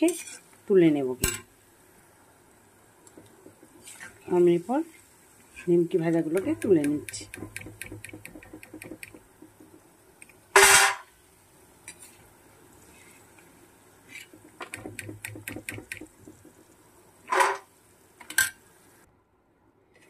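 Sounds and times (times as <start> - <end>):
metal spoon clattering on pan: 6.3 - 9.6, 14.3 - 16.5.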